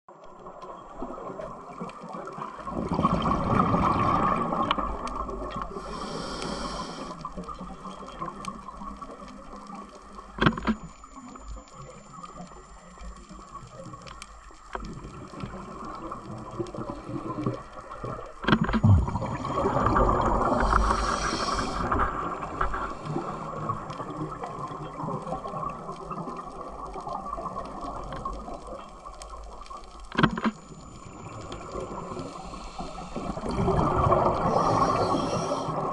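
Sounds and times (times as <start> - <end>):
exhaled bubbles gurgling underwater: 0.1 - 35.9
regulator hiss: 5.7 - 7.4, 19.0 - 23.6, 30.7 - 33.5, 34.3 - 35.9
sharp clicks: 10.2 - 11.6, 18.4 - 18.9, 30.0 - 30.8.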